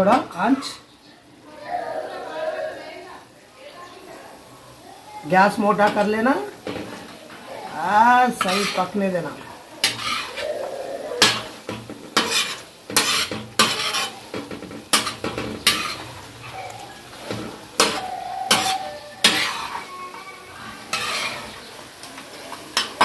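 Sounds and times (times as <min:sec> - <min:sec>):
oil sizzling: 0:00.0 - 0:23.0
metal spatula scraping a griddle: 0:05.8 - 0:09.2, 0:09.8 - 0:10.6, 0:11.2 - 0:23.0.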